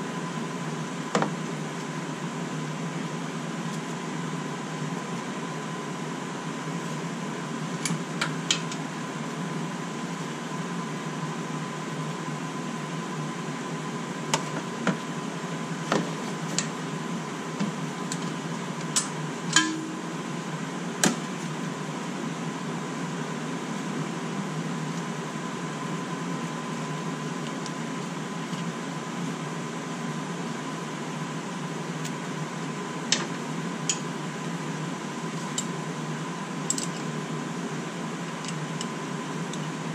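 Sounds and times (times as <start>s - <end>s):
steady hum with high whine: 0.0s - 39.9s.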